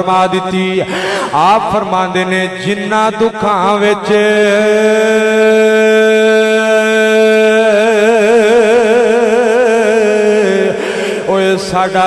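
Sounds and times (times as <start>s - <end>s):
man singing a long held note: 3.2s - 12.0s.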